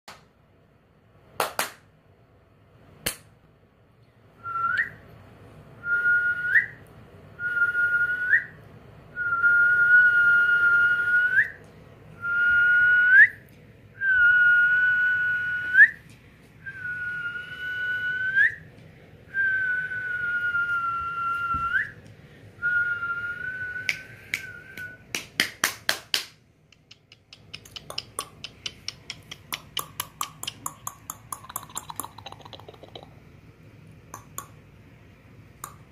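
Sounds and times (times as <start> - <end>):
finger snaps: 3.0 - 3.3, 23.8 - 33.0, 34.1 - 34.6, 35.6 - 35.9
person whistling: 16.6 - 18.7, 19.3 - 22.0, 22.6 - 25.1.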